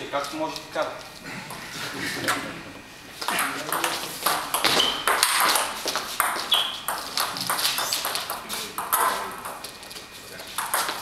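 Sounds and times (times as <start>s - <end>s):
short high squeaks: 4.7s - 5.1s, 6.5s - 6.8s.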